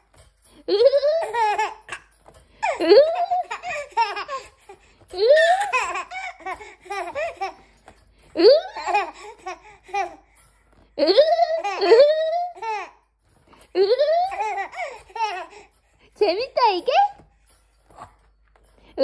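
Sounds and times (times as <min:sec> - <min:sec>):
baby laughing and squealing: 0:00.8 - 0:07.7, 0:08.4 - 0:10.3, 0:13.8 - 0:15.7.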